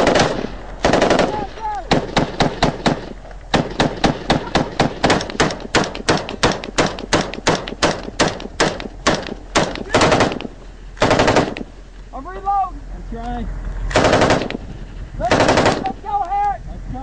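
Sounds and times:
automatic gunfire bursts: 0.0s - 11.7s, 13.9s - 14.6s, 15.2s - 16.0s
evenly spaced gunshots: 0.0s - 11.8s, 13.9s - 16.1s.

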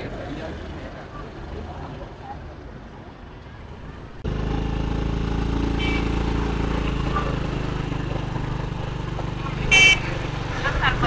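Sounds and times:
street traffic: 0.0s - 11.0s
motorbike engine hum: 3.8s - 11.0s.

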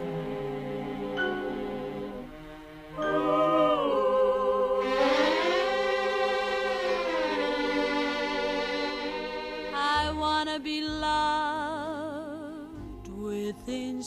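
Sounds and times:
musical backing: 0.0s - 14.0s
person singing with vibrato: 3.0s - 8.8s.

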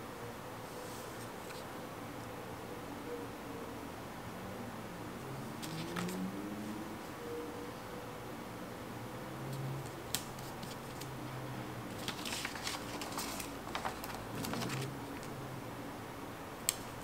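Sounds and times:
faint low hum: 0.0s - 17.0s
paper rustling and clicking: 5.6s - 6.2s, 9.8s - 11.1s, 11.9s - 15.3s.

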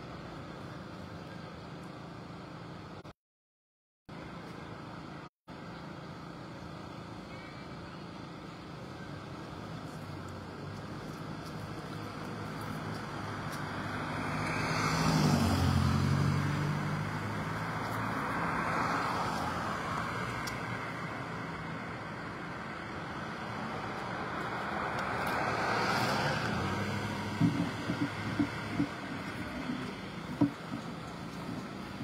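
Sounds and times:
cars passing: 7.3s - 32.0s
small knocks: 27.3s - 31.6s.

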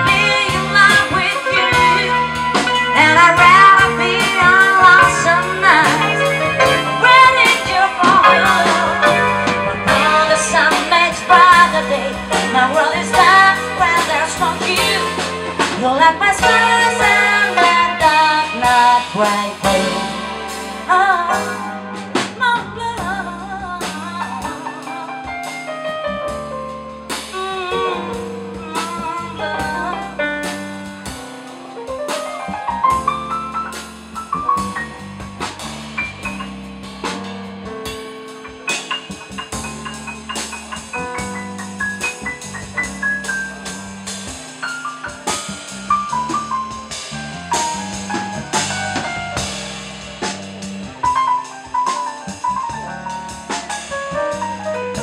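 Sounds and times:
woman singing: 0.0s - 25.5s, 27.3s - 30.7s
live band playing: 0.0s - 55.0s.

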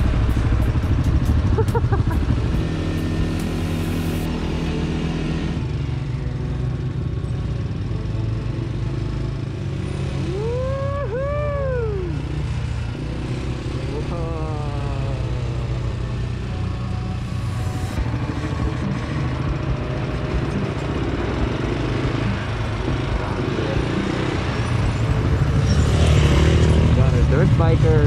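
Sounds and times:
atv engine running: 0.0s - 28.0s
person calling out: 10.3s - 12.2s, 13.8s - 15.6s.

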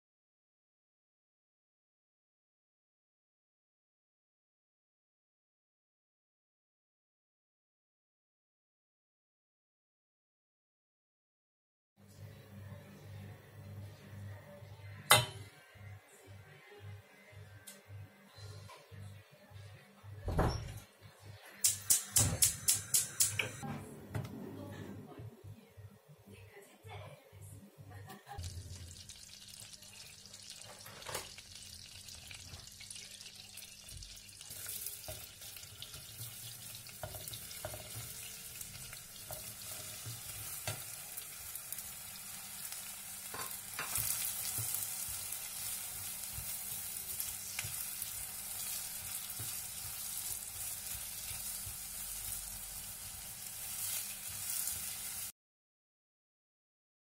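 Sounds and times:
butter and oil sizzling: 28.3s - 55.3s.

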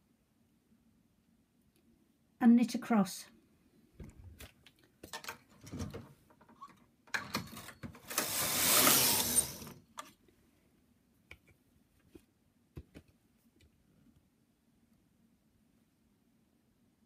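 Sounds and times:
knitting machine carriage rasping: 7.5s - 9.8s.

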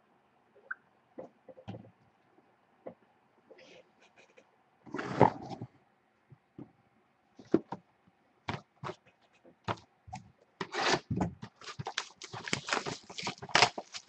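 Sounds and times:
plastic wrapping crinkling: 11.6s - 14.0s.

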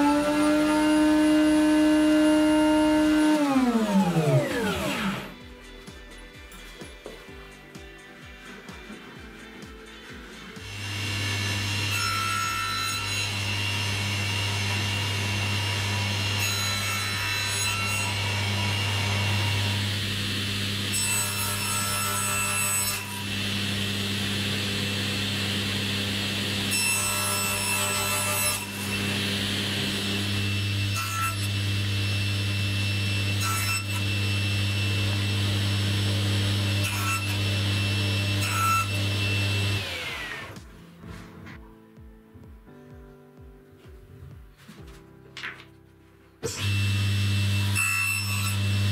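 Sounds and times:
saw blade cutting wood: 0.0s - 5.4s, 10.5s - 40.6s, 46.4s - 48.9s
table saw running: 0.0s - 5.4s, 10.5s - 40.6s, 46.4s - 48.9s.

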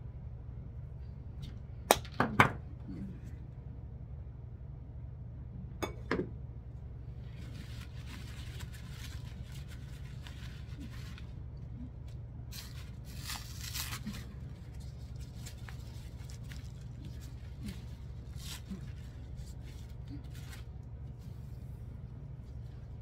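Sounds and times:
steady low hum: 0.0s - 23.0s
artificial leaves rustling: 7.1s - 23.0s.

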